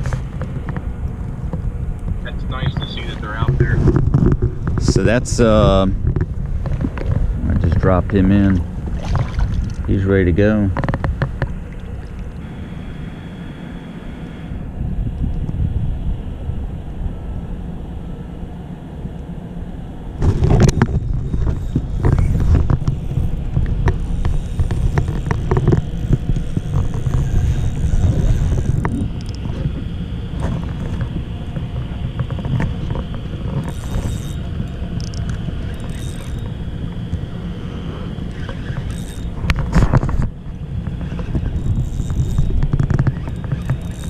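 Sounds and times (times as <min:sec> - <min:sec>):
wind rumbling on microphone: 0:00.0 - 0:13.2, 0:14.3 - 0:44.0
gear knocking and clicking: 0:20.2 - 0:29.7, 0:38.3 - 0:44.0.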